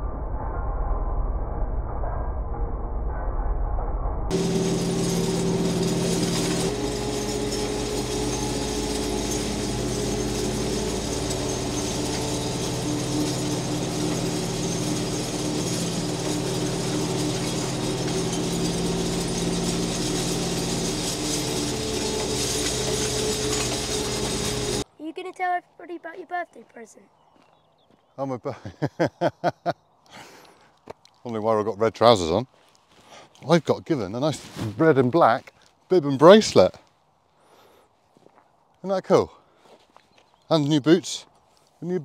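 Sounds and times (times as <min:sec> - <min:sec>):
metallic rattle of harrow chains: 0:04.3 - 0:24.8
tractor diesel engine running: 0:04.3 - 0:24.8.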